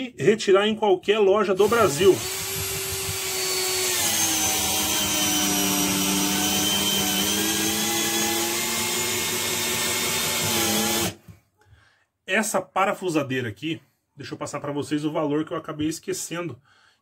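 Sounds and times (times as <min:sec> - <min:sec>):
cordless drill whining: 0:01.6 - 0:11.3.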